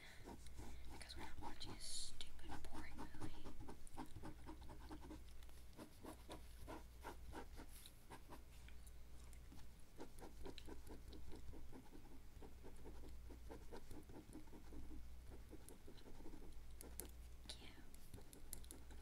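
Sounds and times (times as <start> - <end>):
pen scratching on paper: 2.4 - 8.4, 10.0 - 17.0.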